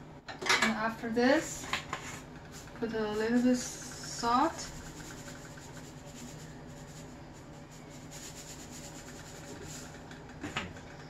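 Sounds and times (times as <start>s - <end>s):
salt shaker rustle: 2.5s - 10.0s.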